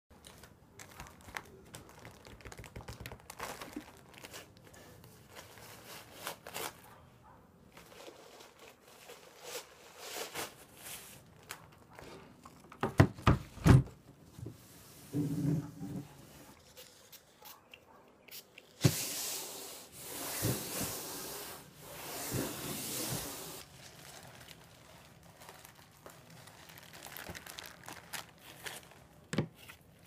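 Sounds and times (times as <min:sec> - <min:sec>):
plastic wrap crinkling: 0:00.1 - 0:07.0, 0:07.7 - 0:12.8, 0:21.8 - 0:30.0.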